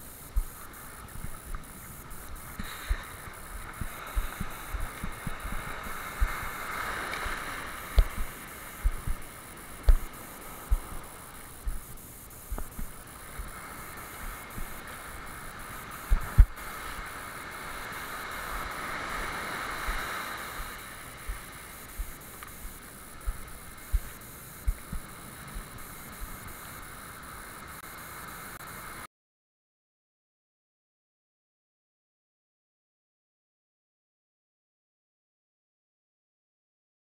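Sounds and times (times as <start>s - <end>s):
surf washing around kayak: 0.0s - 29.1s
low thumps: 7.9s - 13.5s.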